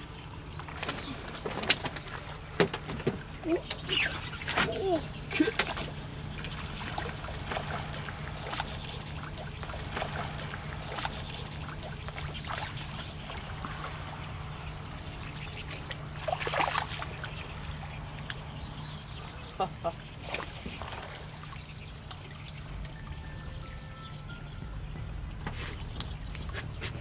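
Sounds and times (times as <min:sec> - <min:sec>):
steady low hum: 0:00.0 - 0:27.0
fish splashing in water: 0:00.4 - 0:23.0.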